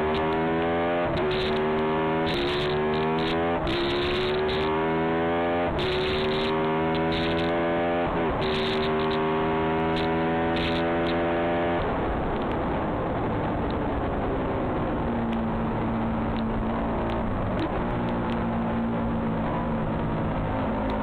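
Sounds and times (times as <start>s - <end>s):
motorcycle engine at full throttle: 0.0s - 21.0s
wind rushing over microphone: 5.6s - 21.0s.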